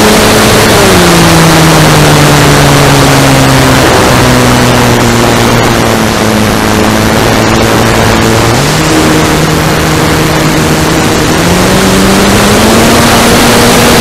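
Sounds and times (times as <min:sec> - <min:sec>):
electric motor and propeller hum: 0:00.0 - 0:14.0
loud wind rush: 0:00.0 - 0:14.0.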